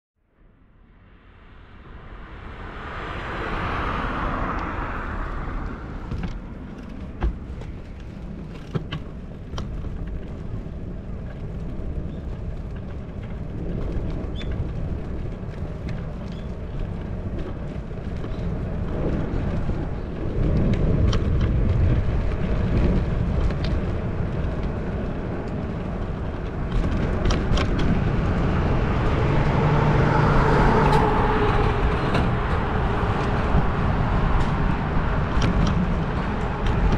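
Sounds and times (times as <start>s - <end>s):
road rumble: 0.2s - 36.9s
wind noise: 0.7s - 36.9s
passing motor traffic: 0.8s - 8.5s, 15.3s - 36.9s.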